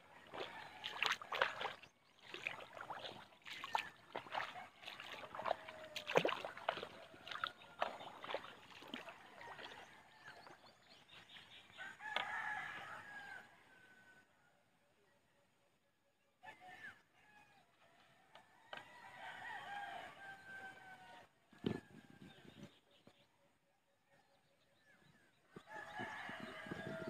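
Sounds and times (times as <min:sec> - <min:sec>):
footsteps splashing through water: 0:00.0 - 0:11.3.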